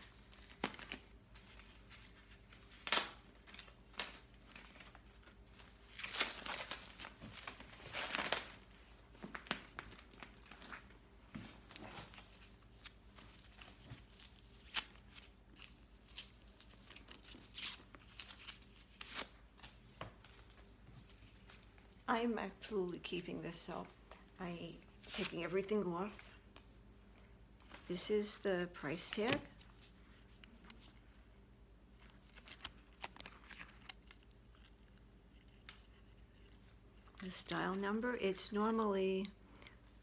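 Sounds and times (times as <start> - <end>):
paper wrapping crinkling: 0.0 - 10.9, 11.7 - 21.9, 31.9 - 38.4.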